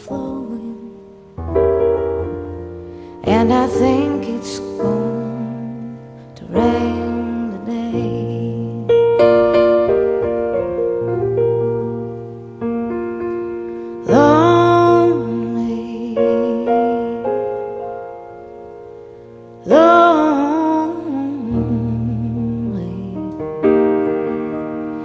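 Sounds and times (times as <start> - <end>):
woman singing: 0.0 - 1.2, 3.2 - 9.5, 14.0 - 17.8, 19.6 - 24.6
slow piano chords: 0.0 - 25.0.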